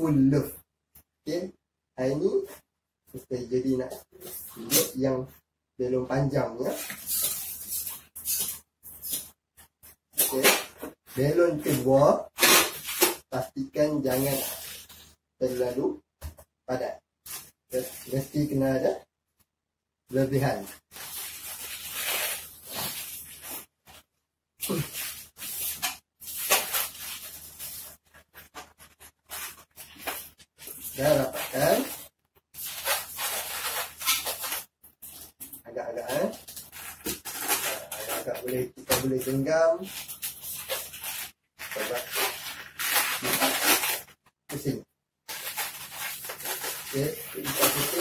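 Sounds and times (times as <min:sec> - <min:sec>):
balloon squeaks: 0:11.6 - 0:13.2
balloons squeaking against hands: 0:24.6 - 0:35.4.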